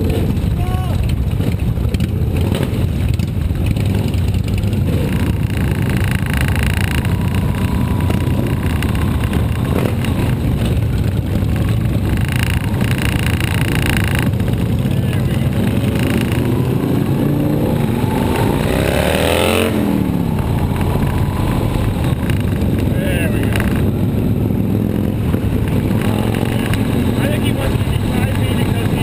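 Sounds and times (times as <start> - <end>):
motorcycle engines running: 0.0 - 29.0.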